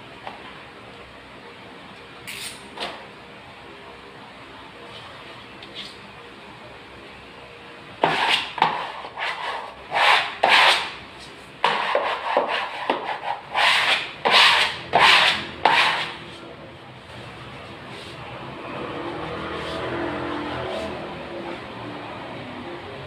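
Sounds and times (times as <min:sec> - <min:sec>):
scraping strokes on papered wall: 0:08.0 - 0:16.5, 0:19.0 - 0:21.2.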